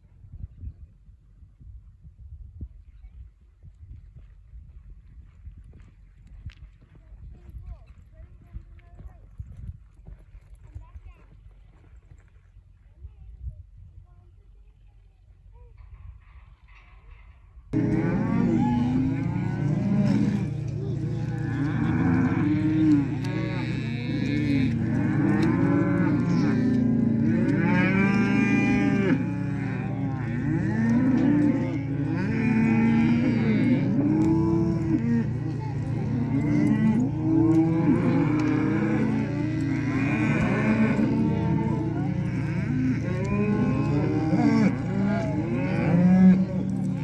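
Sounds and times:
cows mooing: 17.8 - 47.0.

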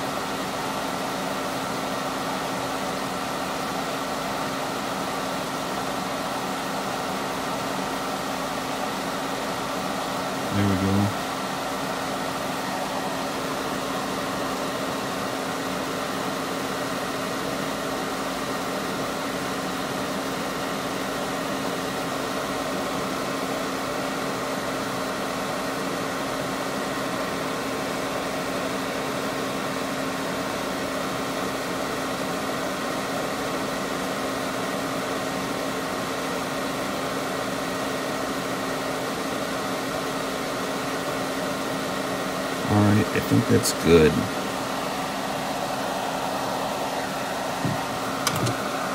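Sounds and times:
hot air blower rushing: 43.1 - 48.9.

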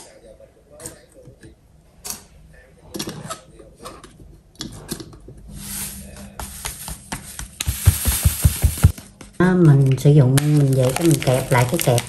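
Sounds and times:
dull taps on bag: 7.5 - 9.0
ground coffee pouring rustle: 7.6 - 9.0.

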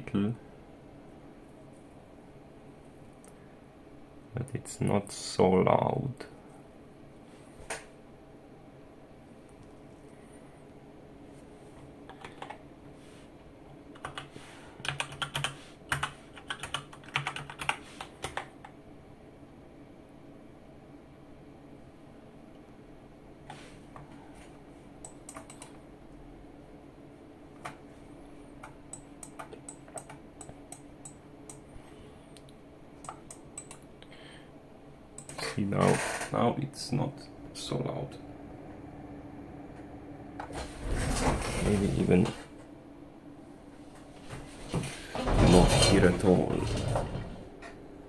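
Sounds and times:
keyboard typing: 14.0 - 18.6, 25.0 - 25.8, 28.6 - 31.6, 33.0 - 33.8.

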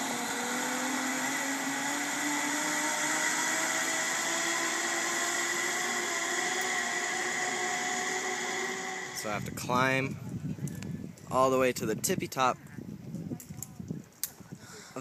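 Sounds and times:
zip line trolley whirring: 0.0 - 10.2.

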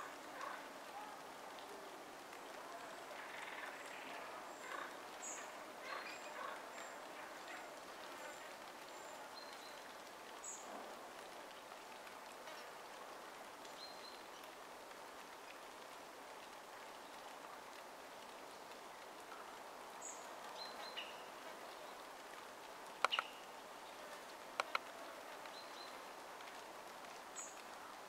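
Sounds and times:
steady hiss: 0.0 - 28.0
small bird thin high calls: 23.0 - 23.5
high bird chirps: 23.1 - 23.4.

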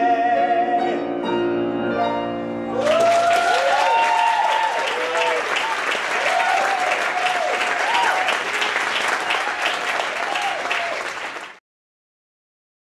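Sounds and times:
audience applauding: 2.7 - 11.6.

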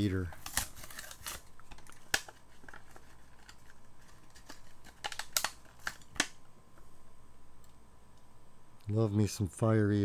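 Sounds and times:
plastic packaging crinkling: 0.1 - 6.3.

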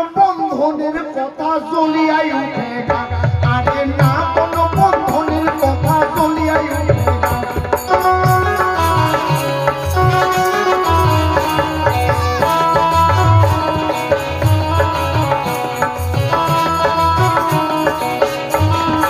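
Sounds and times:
drums beating a rhythm: 2.6 - 19.0
melodic instrument line: 8.0 - 19.0.

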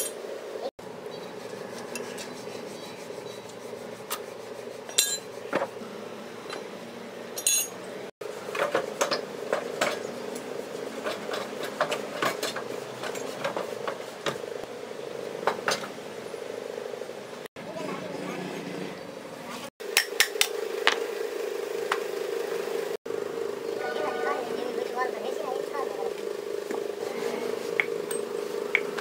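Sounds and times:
metal engine parts clinking: 4.9 - 5.4, 7.3 - 7.9.

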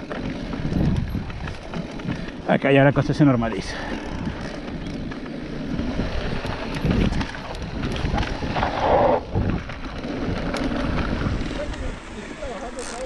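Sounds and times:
bike clicks and rattles: 0.0 - 13.0
bike tyres on dirt: 0.0 - 13.0
wind on microphone: 0.4 - 2.2, 3.7 - 12.2.

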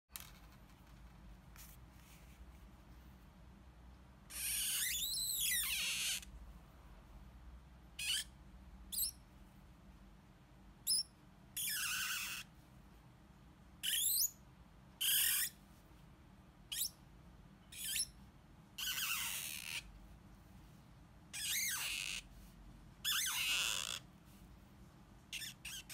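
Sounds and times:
marker squeaking on card: 4.3 - 6.4, 8.0 - 9.2, 10.9 - 12.5, 13.8 - 14.4, 15.0 - 15.6, 16.7 - 17.0, 17.7 - 18.2, 18.8 - 20.0, 21.3 - 24.1, 25.3 - 25.9.

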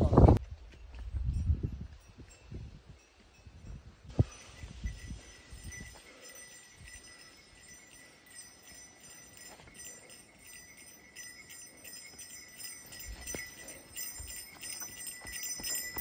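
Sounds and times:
bear bell jingling: 1.0 - 16.0
soft footfalls on trail: 12.1 - 16.0.

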